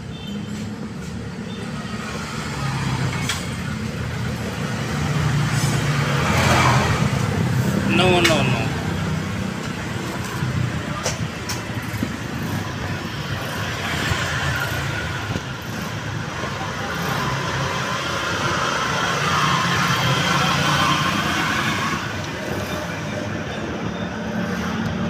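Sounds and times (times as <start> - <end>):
hum of motor vehicles: 0.0 - 25.0.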